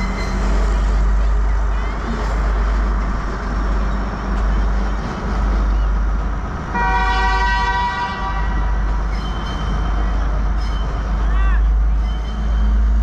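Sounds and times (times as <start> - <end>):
train horn blast: 6.7 - 8.9.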